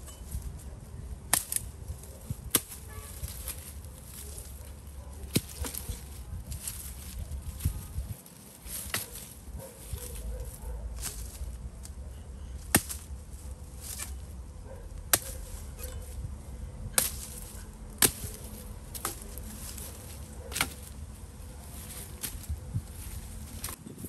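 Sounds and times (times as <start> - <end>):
wood chopping strikes: 5.3 - 6.0, 12.6 - 13.1, 15.0 - 16.0, 16.9 - 21.0.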